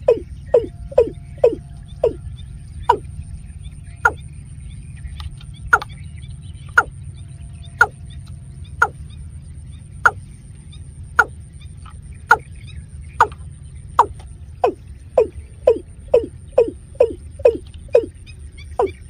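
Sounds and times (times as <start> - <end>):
bird short sharp calls: 14.0 - 19.0.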